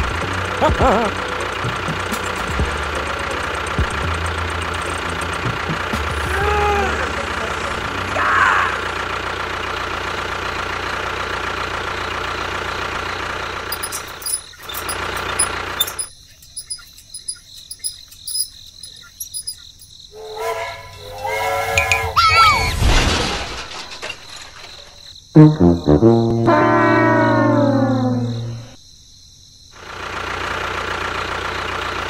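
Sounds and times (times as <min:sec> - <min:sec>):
engine running steadily: 0:00.0 - 0:16.1, 0:29.8 - 0:32.0
pitched sounds with rising note: 0:25.4 - 0:28.8.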